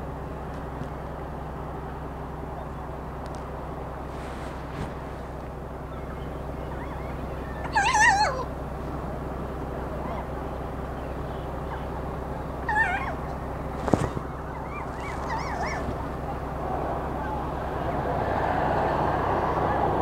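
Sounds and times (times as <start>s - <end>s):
bird warbling calls: 5.6s - 8.6s, 9.8s - 16.4s.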